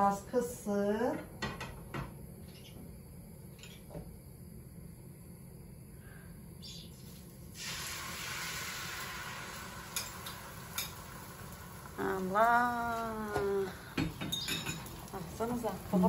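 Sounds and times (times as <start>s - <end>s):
hot oil sizzling in a frying pan: 7.0s - 16.0s.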